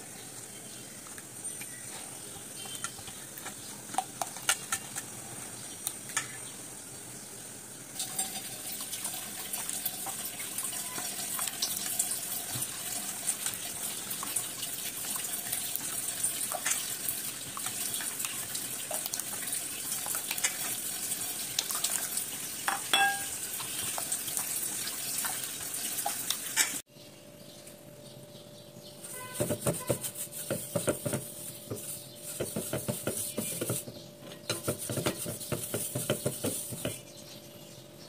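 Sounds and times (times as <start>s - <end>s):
spoon stirring runny batter: 1.2s - 5.2s, 8.0s - 25.4s, 29.0s - 37.2s
spoon tapping metal bowl: 22.7s - 23.4s.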